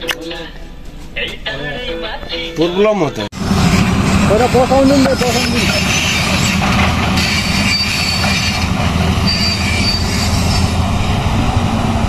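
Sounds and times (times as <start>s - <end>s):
excavator engine rumble: 3.4s - 12.0s
high metallic squeals: 4.5s - 10.8s.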